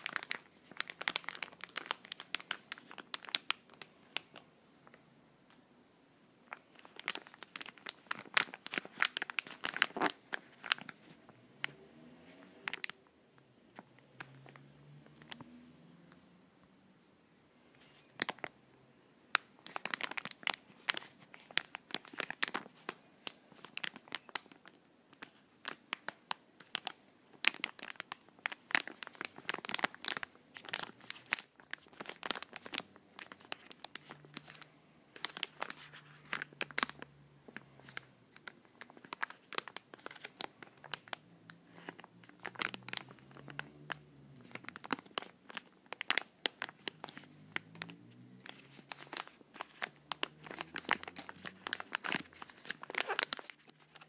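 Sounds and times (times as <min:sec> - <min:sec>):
plastic pack crinkling: 0:00.0 - 0:05.6, 0:06.4 - 0:11.8, 0:12.7 - 0:13.0, 0:17.8 - 0:18.5, 0:19.3 - 0:54.0.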